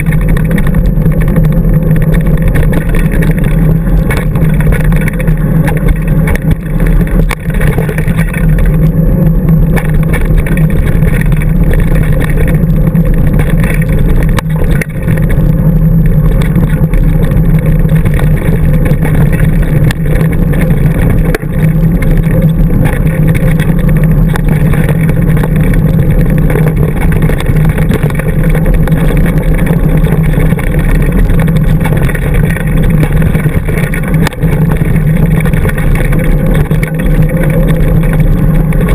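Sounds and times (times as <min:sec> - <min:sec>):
bike rolling over dirt trail: 0:00.0 - 0:38.9.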